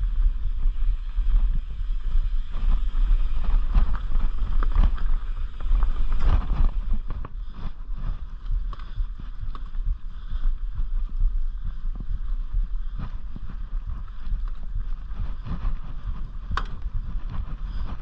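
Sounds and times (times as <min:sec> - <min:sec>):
bike rattling over bumps: 0:00.0 - 0:18.0
wind buffeting microphone: 0:00.0 - 0:18.0.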